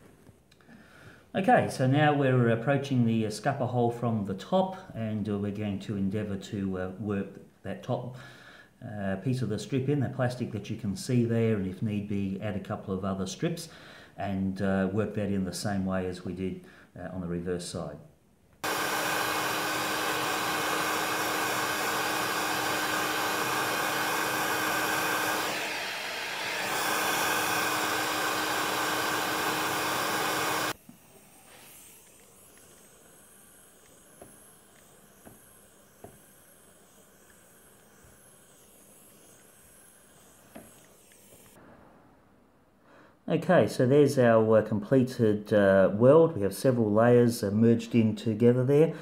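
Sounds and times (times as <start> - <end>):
hot air tool blowing with hum: 18.6 - 41.8.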